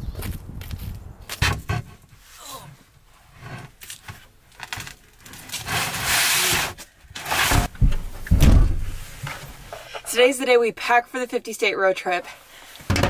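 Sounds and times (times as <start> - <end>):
long scraping rustle: 1.7 - 7.7.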